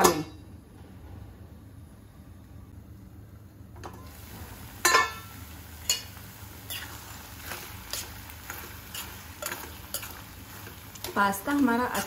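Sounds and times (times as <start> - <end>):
spoon scraping and clinking pan: 6.7 - 11.2.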